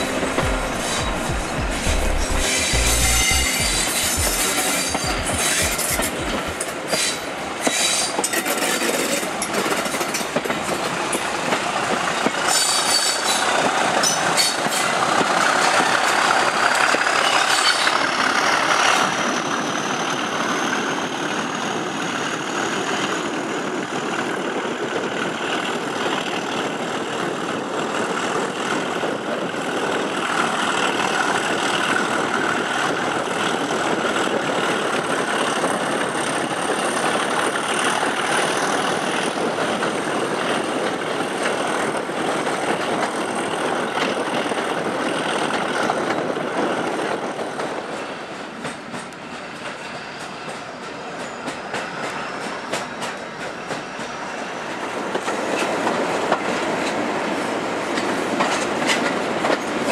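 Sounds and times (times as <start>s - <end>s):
high whistle: 0.0s - 6.1s
diesel locomotives working hard: 0.0s - 59.9s
train wheel noise: 0.0s - 59.9s.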